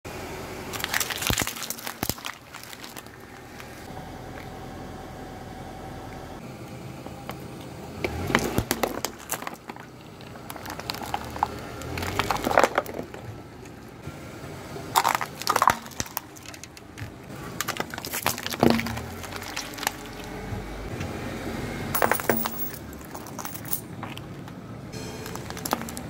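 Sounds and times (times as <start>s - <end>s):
tyre crushing objects on asphalt: 0.7s - 3.9s, 7.0s - 13.9s, 14.9s - 20.7s, 22.0s - 24.4s, 25.2s - 26.0s.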